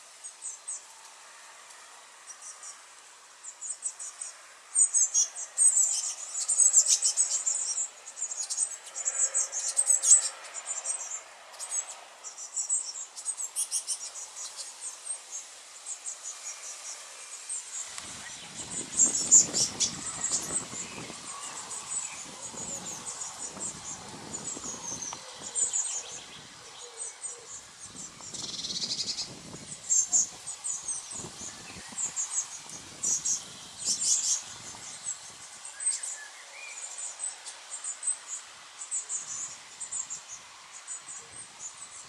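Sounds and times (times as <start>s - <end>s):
nestlings chirping high-pitched: 17.7s - 26.5s, 27.1s - 36.2s.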